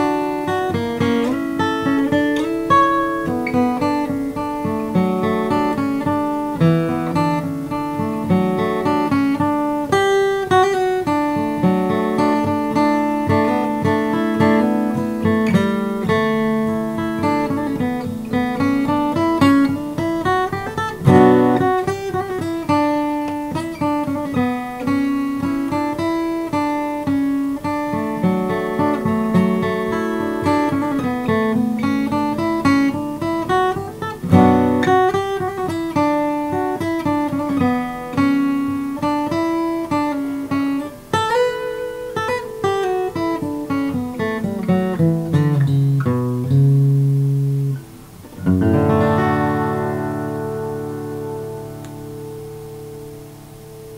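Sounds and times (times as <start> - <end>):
acoustic guitar waltz melody: 0.0 - 53.9.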